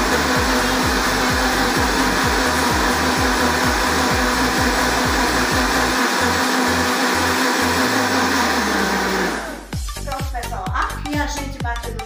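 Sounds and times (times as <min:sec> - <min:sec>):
background music with a beat: 0:00.0 - 0:05.9, 0:09.4 - 0:12.0
blender running: 0:00.0 - 0:09.8.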